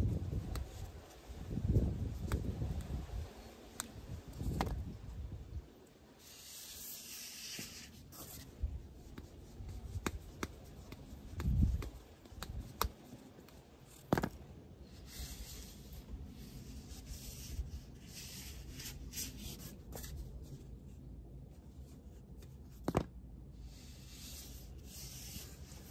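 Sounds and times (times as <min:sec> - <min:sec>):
flip-flops slapping: 0:09.1 - 0:14.5, 0:22.8 - 0:23.2.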